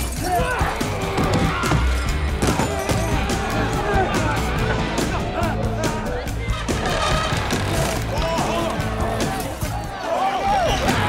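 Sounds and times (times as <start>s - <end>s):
film music: 0.0s - 11.0s.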